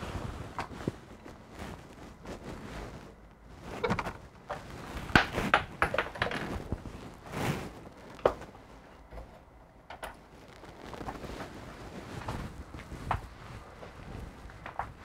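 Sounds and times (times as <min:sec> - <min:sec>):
objects knocking when handled: 0:05.0 - 0:06.8.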